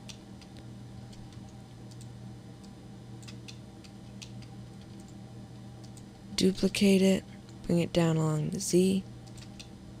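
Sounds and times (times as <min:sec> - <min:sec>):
keyboard and mouse clicks: 0:00.0 - 0:05.2, 0:05.8 - 0:06.1, 0:09.2 - 0:09.8
steady low hum: 0:00.0 - 0:10.0.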